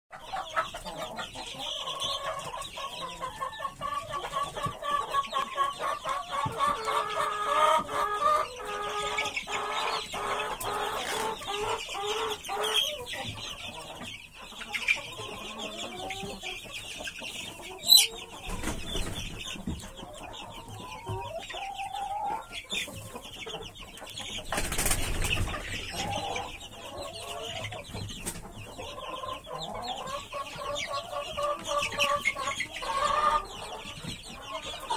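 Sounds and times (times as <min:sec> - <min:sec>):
chicks peeping and cheeping: 0:00.1 - 0:34.9.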